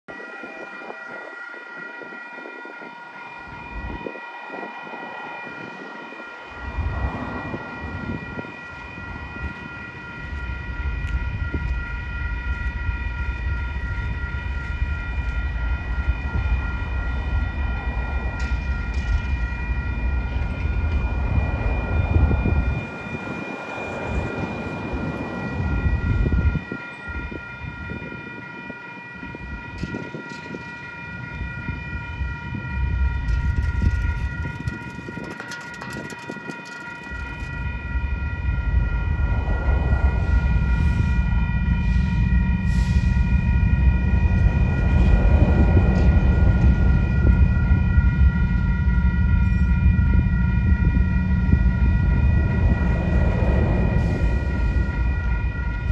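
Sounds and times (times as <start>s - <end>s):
railroad crossing bell ringing: 0.1s - 55.9s
low rumble: 37.0s - 55.9s.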